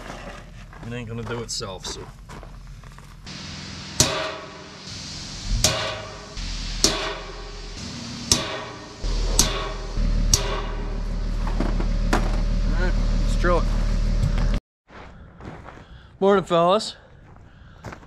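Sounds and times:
hammer striking punch on metal: 0:03.3 - 0:12.6.

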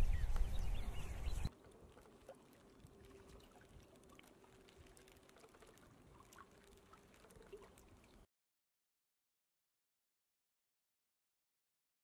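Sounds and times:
water lapping and trickling: 0:00.5 - 0:08.3
small ticks: 0:01.5 - 0:08.2.

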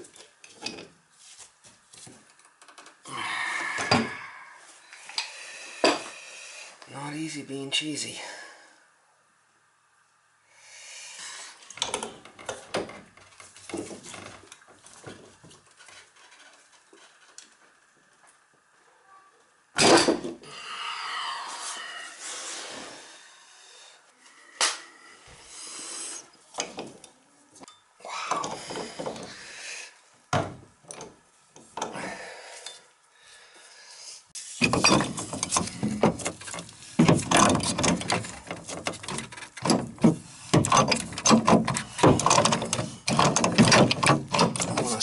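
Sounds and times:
wrench scraping and knocking on pipe: 0:34.6 - 0:45.0.

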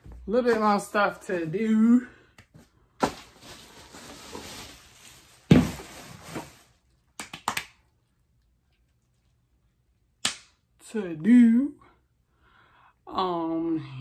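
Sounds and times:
rustling of belongings: 0:02.5 - 0:07.1.

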